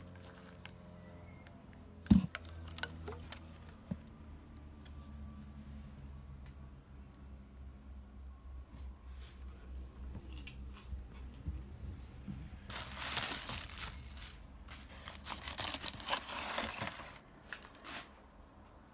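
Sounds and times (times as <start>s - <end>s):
bubble wrap crinkling: 0.0s - 0.8s, 12.6s - 18.2s.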